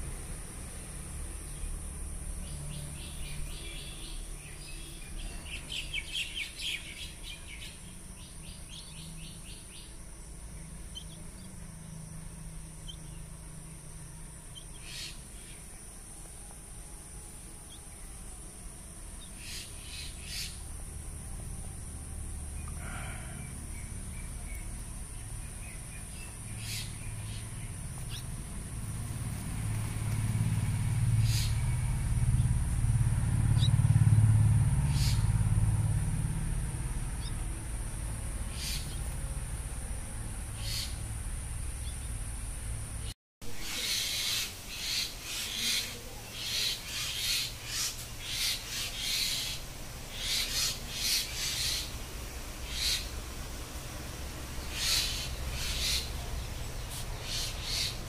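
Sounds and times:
bird chicks calling: 10.8 - 11.5, 31.2 - 32.5, 38.5 - 39.2, 40.6 - 41.0, 43.6 - 52.0, 52.6 - 53.2, 54.6 - 58.0.

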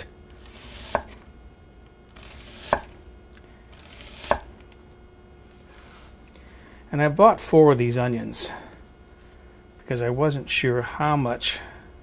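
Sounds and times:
knife slicing onion: 0.0 - 1.2, 2.1 - 3.0, 3.7 - 4.6.

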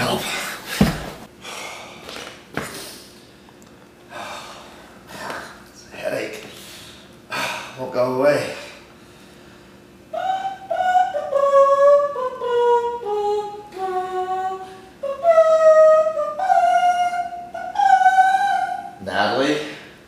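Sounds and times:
high voice singing unaccompanied: 10.1 - 19.6.

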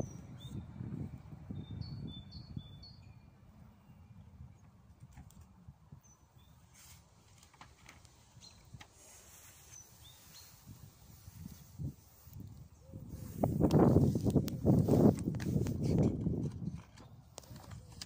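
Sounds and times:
small birds chirping: 0.0 - 4.8, 5.9 - 7.0, 7.8 - 15.1.

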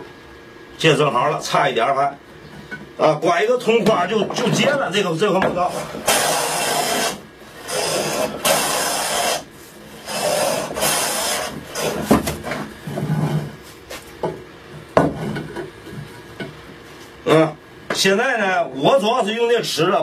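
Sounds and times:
hand plane shaving wood: 5.7 - 12.6.

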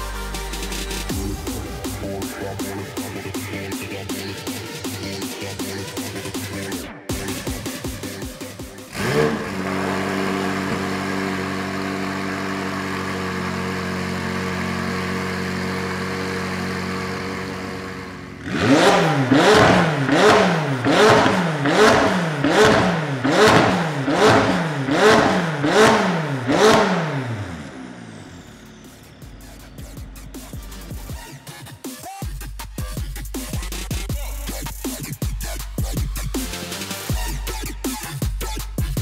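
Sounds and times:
car engine idling: 0.0 - 39.0
engine revving: 0.0 - 39.0.

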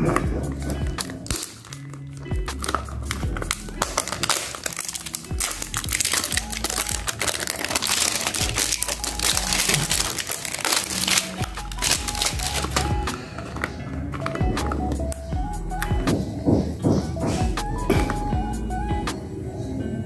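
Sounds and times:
cellophane crinkling: 0.0 - 14.4
background music with bass line: 0.0 - 19.2.

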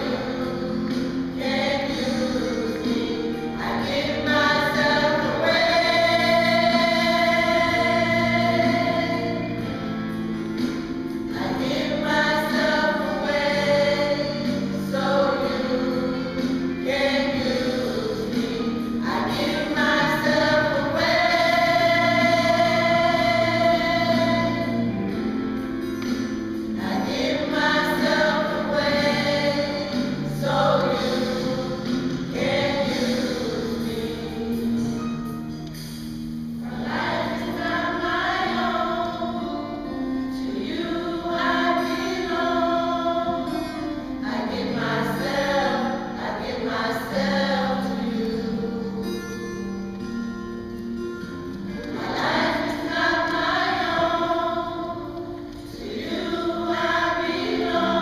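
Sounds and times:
women's choir singing: 0.0 - 35.2, 36.5 - 49.3, 51.2 - 58.0.

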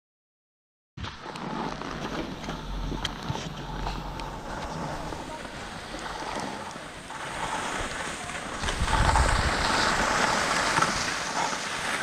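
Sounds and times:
skis scraping over snow: 1.0 - 12.0
wind buffeting microphone: 1.9 - 11.5.

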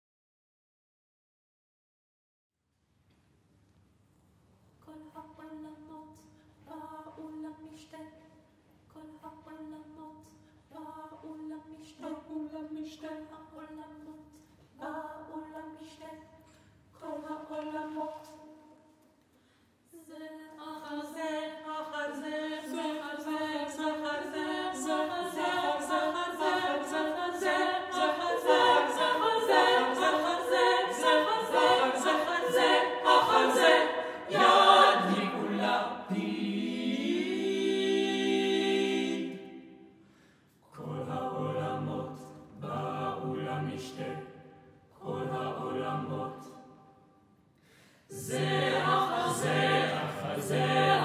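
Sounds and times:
choir singing a cappella: 9.0 - 16.3, 17.0 - 18.8, 20.0 - 47.1, 48.1 - 51.0.

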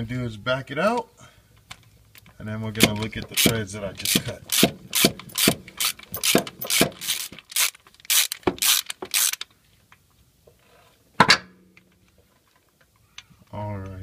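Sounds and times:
ratchet tap handle rasping: 3.0 - 9.4.

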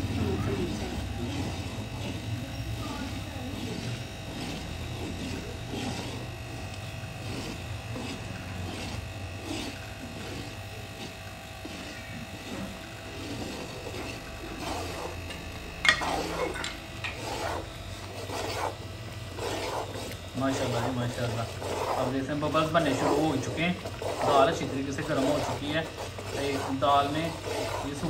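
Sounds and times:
faint voices: 0.0 - 6.7
ladle stirring thick food in pot: 0.1 - 28.0.

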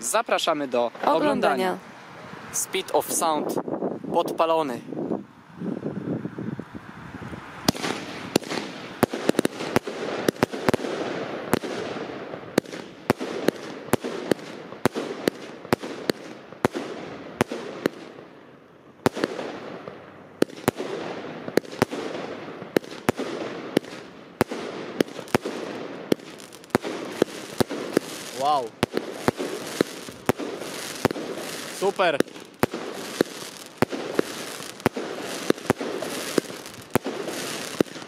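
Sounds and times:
fireworks bangs: 6.7 - 38.0
fireworks hiss: 7.0 - 17.0, 20.4 - 38.0.

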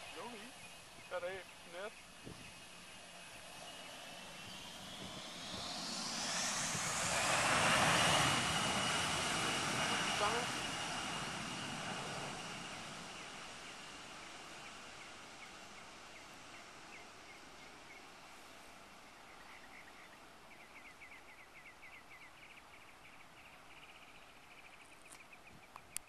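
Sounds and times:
high whine: 0.0 - 15.6
jet engines: 0.0 - 26.0.

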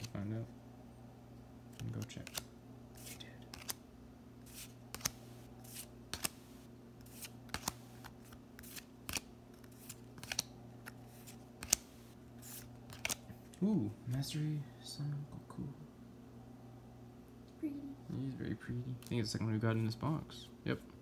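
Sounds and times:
cards flipped with papery snap: 1.7 - 3.8, 4.5 - 13.3.

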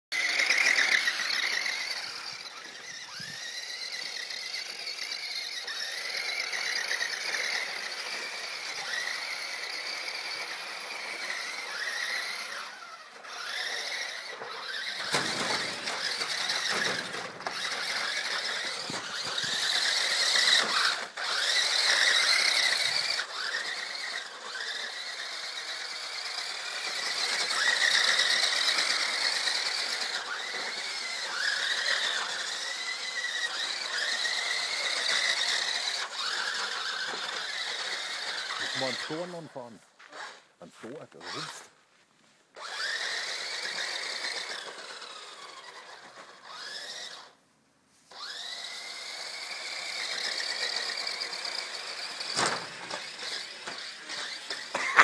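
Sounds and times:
electric motor whine: 0.2 - 40.4, 42.6 - 47.4, 48.1 - 55.0.

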